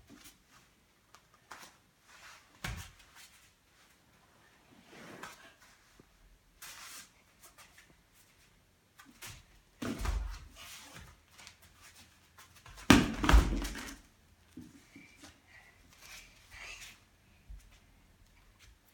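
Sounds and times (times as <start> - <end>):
thuds on foam mats: 12.8 - 14.0.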